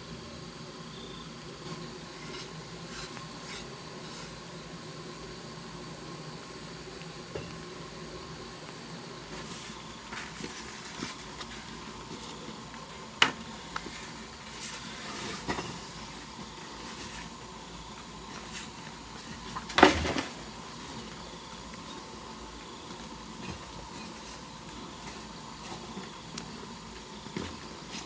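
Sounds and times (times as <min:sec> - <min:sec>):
low background noise: 0:00.0 - 0:28.0.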